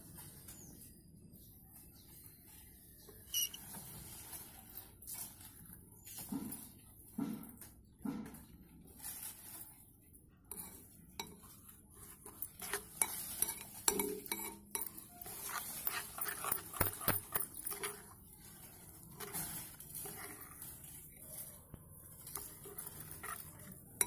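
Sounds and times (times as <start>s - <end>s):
spoon stirring wet paste: 2.8s - 3.7s, 10.5s - 24.0s
metal spoon scraping glass bowl: 3.3s - 3.6s, 10.5s - 21.2s, 22.2s - 24.0s.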